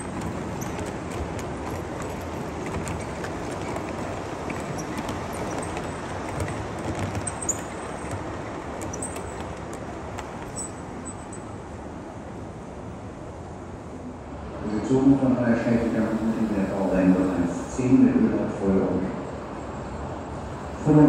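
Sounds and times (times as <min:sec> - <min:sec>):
model train wagons rumbling: 0:00.0 - 0:12.6.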